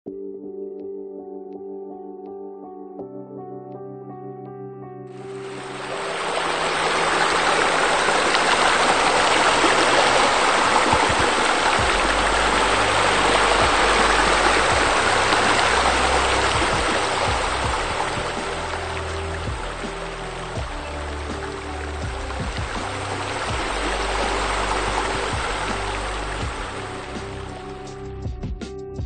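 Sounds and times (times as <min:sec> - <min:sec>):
rushing churning water: 0:05.2 - 0:27.9.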